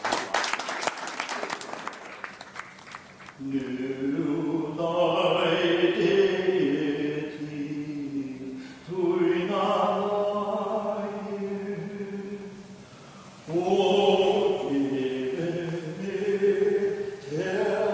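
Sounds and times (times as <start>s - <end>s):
male choir singing a cappella: 3.4s - 12.8s, 13.4s - 17.9s.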